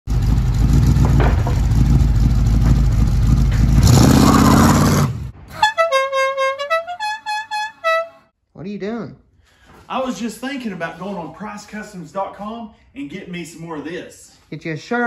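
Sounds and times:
vehicle engine running loudly: 0:00.1 - 0:05.1
horn playing a short tune: 0:05.5 - 0:08.3.

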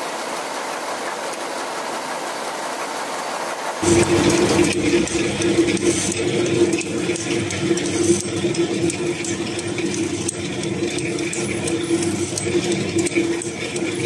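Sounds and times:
bottle capping machine humming: 0:03.8 - 0:14.0
fast clicking and rattling: 0:03.8 - 0:14.0.

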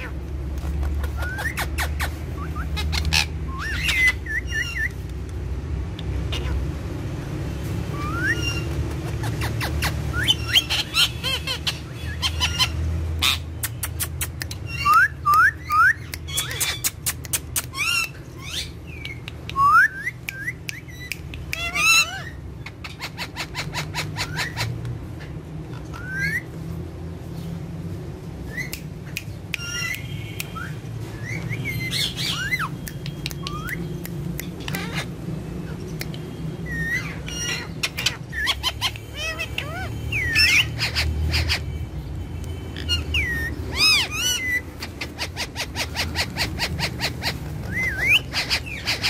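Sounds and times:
parakeets chirping and squawking: 0:00.0 - 0:49.0
sharp clicks: 0:13.6 - 0:17.8, 0:32.6 - 0:35.2, 0:35.8 - 0:36.4.

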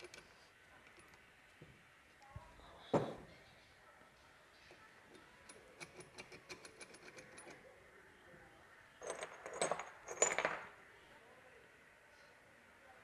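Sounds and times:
small steel parts clinking: 0:09.0 - 0:10.7.

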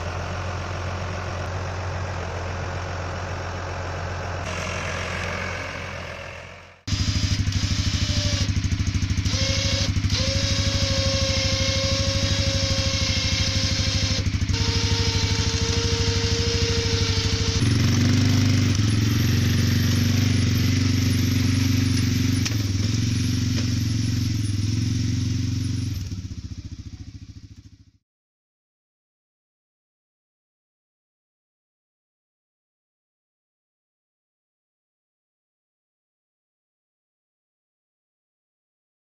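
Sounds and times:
engine running: 0:00.0 - 0:28.0.

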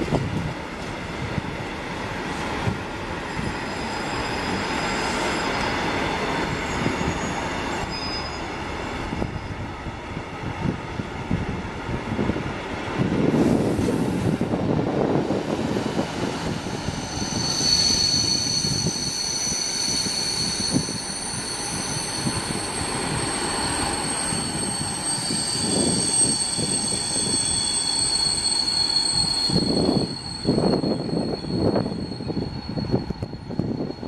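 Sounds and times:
train wheels rumbling on rails: 0:00.0 - 0:34.0
high-pitched wheel squeal: 0:03.3 - 0:09.6, 0:16.4 - 0:34.0.

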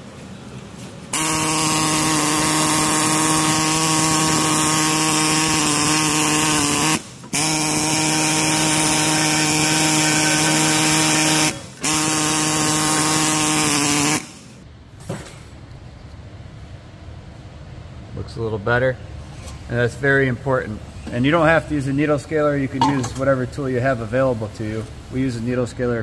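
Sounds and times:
pneumatic needle scaler buzzing: 0:01.1 - 0:14.6.

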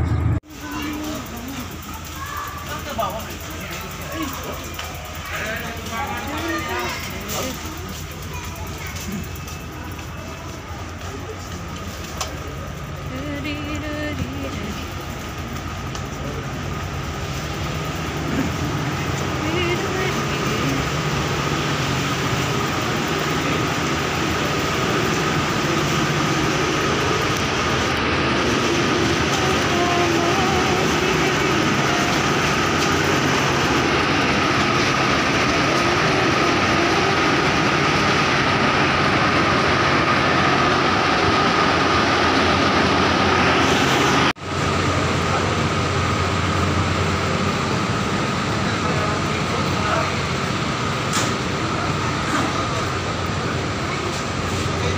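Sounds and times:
high whine: 0:00.0 - 0:54.9
machinery hum: 0:00.0 - 0:54.9
rushing noise: 0:00.0 - 0:54.9.

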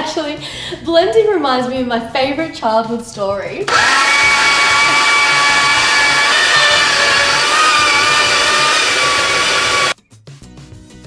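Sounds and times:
blender motor whining: 0:03.7 - 0:10.0.

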